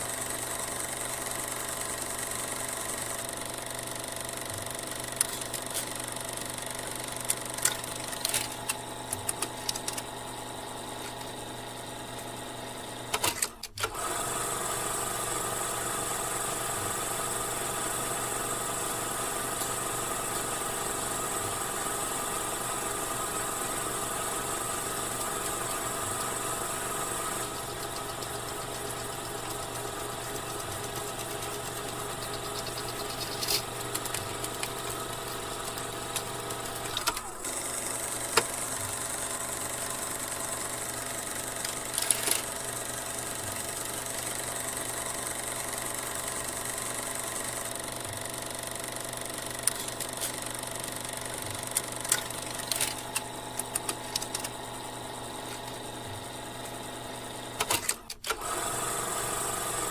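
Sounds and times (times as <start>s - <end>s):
projector motor and fan hum: 0.0s - 59.9s
projector mechanism clicks: 2.9s - 10.2s, 13.1s - 14.1s, 24.5s - 37.6s, 40.3s - 42.7s, 48.7s - 54.7s, 57.6s - 58.6s.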